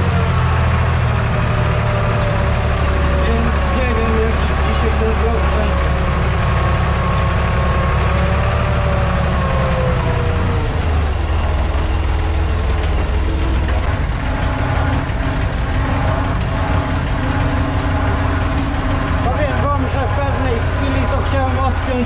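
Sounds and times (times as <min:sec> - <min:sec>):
engine whine: 0:00.0 - 0:22.0
tractor diesel engine running: 0:00.0 - 0:22.0.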